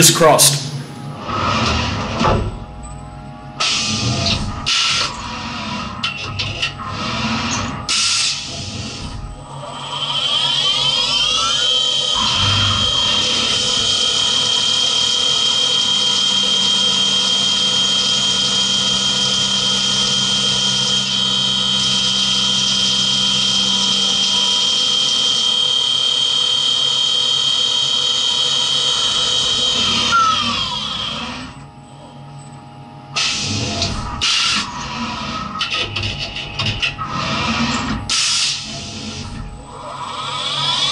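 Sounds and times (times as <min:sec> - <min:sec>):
milling machine cutting whine: 0:00.0 - 0:32.3, 0:33.0 - 0:40.9
spindle winding down: 0:09.7 - 0:31.5
loud burst of noise: 0:10.4 - 0:17.2.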